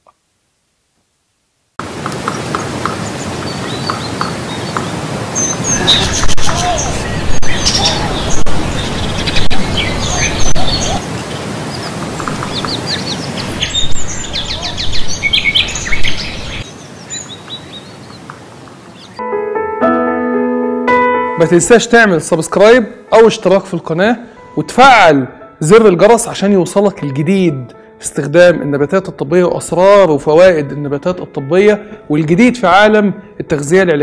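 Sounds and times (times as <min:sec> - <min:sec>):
small birds chirping: 0:02.2 - 0:19.2.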